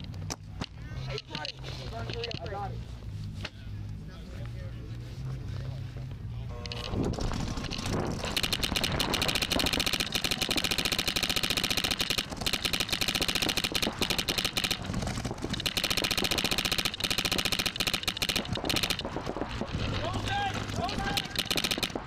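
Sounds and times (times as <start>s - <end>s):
paintball marker rapid firing: 7.1s - 22.0s.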